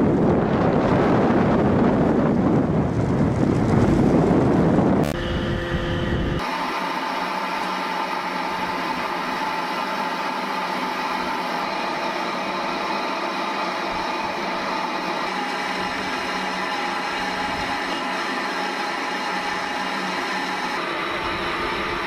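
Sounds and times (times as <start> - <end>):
machinery hum: 0.0 - 22.0
steady whining tones: 4.4 - 22.0.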